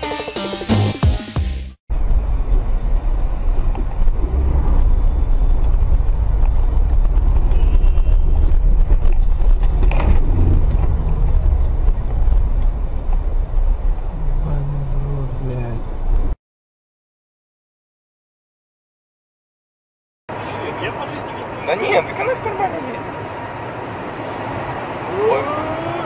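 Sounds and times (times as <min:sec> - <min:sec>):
car road and engine rumble: 0:01.9 - 0:16.4, 0:20.3 - 0:26.0.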